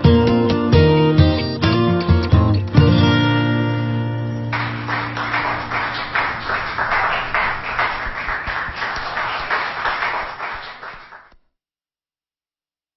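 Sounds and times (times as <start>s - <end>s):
hand clapping: 4.5s - 11.4s.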